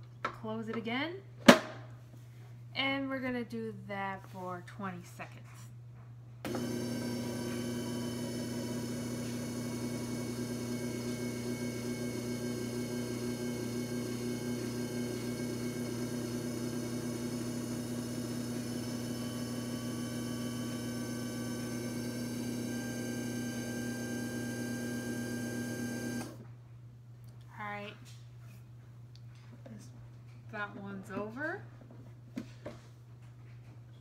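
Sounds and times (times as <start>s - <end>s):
disc repair machine motor humming: 6.5s - 26.4s.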